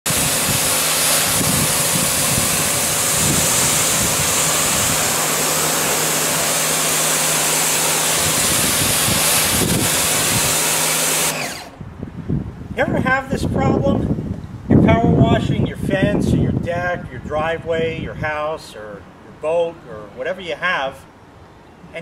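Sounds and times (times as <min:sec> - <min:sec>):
pressure washer jet hissing: 0:00.0 - 0:11.8
pump motor humming: 0:00.0 - 0:11.8.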